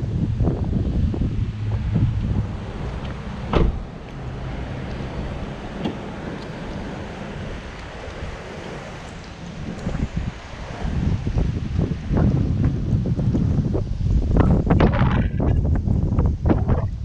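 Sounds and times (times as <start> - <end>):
wind buffeting microphone: 0.0 - 17.0
car door shutting: 2.8 - 4.2, 4.9 - 7.1.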